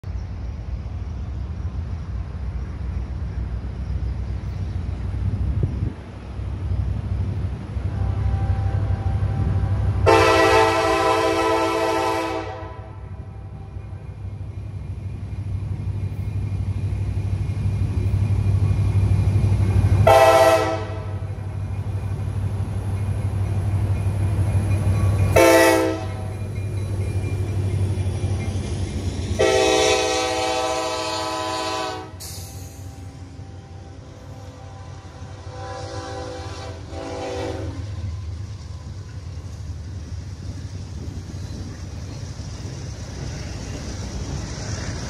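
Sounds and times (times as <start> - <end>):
locomotive air horn blasts: 7.9 - 13.2, 20.0 - 21.3, 25.4 - 26.3, 29.4 - 32.7, 34.4 - 37.9.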